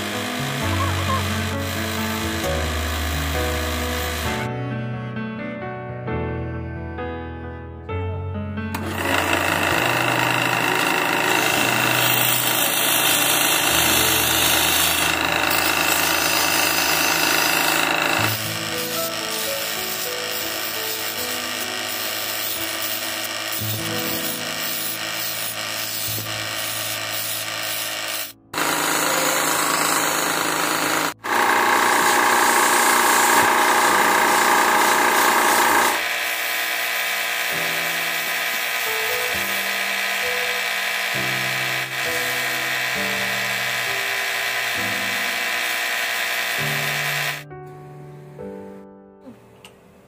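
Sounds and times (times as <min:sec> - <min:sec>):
wood lathe rasping hiss: 0:00.0 - 0:04.5, 0:08.7 - 0:47.4
background music with melody: 0:00.0 - 0:31.3, 0:46.5 - 0:50.0.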